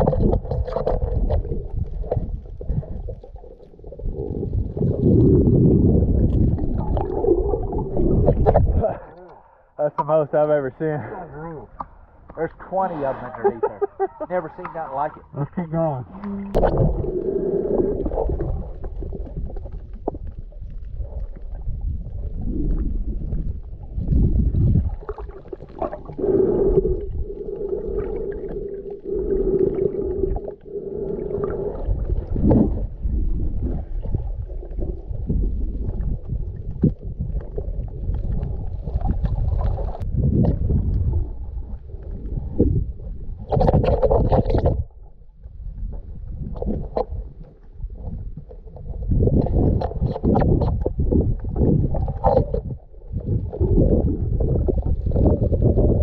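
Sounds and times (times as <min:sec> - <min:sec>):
underwater water movement gurgling: 0:00.0 - 0:10.1, 0:11.6 - 0:56.0
brighter rush of water: 0:12.4 - 0:15.3.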